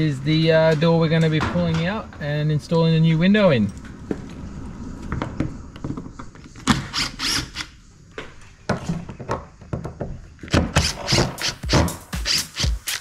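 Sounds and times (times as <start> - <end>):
hand tools knocking on wood: 8.7 - 12.0.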